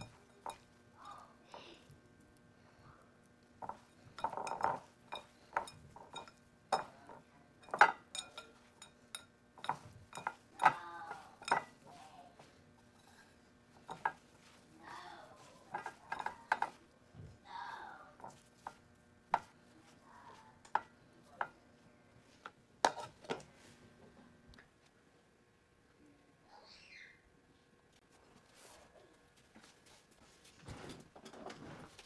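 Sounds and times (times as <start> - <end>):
meat clinking against metal bowl: 0.0 - 1.2, 3.6 - 14.6, 15.3 - 16.9.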